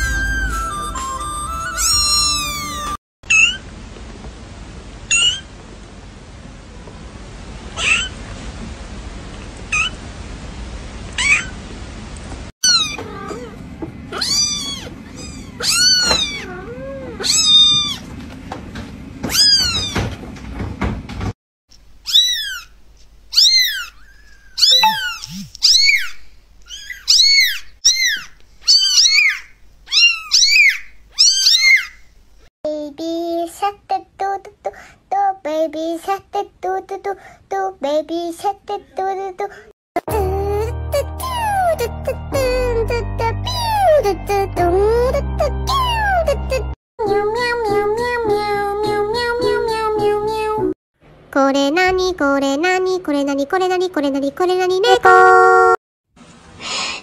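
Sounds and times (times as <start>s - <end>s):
kittens meowing: 12.6s - 18.0s, 22.1s - 22.7s, 23.3s - 31.9s.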